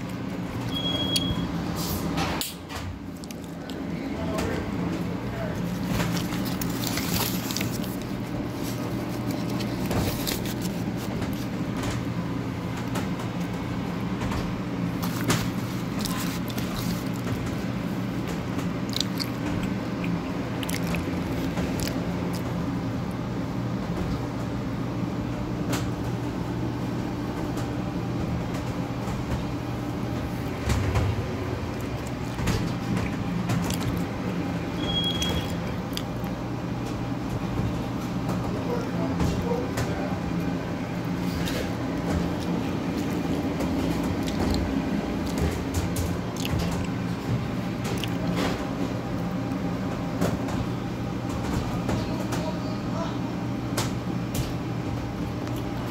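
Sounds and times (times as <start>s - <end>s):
equipment hum: 0.0s - 55.9s
chewing: 5.4s - 11.6s, 14.9s - 17.7s, 18.8s - 22.6s, 31.7s - 34.1s, 35.2s - 36.4s, 41.3s - 47.0s, 47.8s - 48.6s, 55.3s - 55.9s
paper wrapper crinkling: 5.4s - 11.8s, 14.8s - 18.0s.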